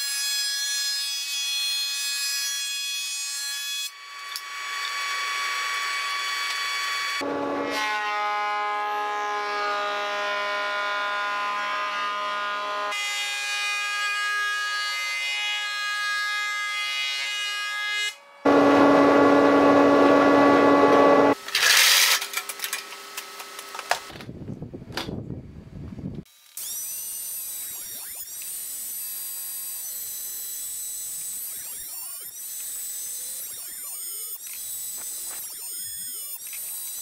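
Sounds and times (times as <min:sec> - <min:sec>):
thickness planer high whine: 0:07.2 - 0:12.9, 0:18.5 - 0:21.4
electric motor whine: 0:18.5 - 0:22.1, 0:26.3 - 0:37.0
machine winding down: 0:18.5 - 0:24.1
planer cutting board: 0:18.5 - 0:24.1.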